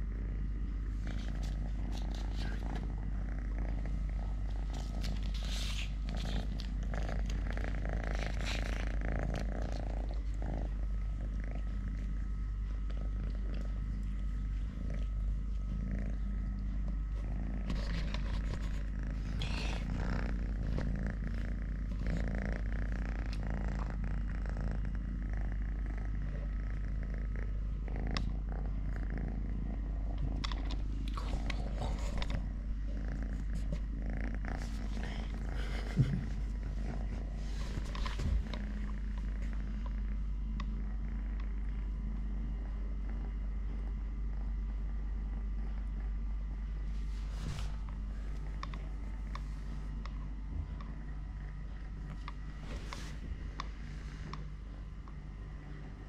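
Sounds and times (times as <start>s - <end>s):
kitten purring: 0.0s - 56.0s
scratchy noises: 1.0s - 10.8s, 17.1s - 23.8s, 31.2s - 39.8s, 47.0s - 48.4s.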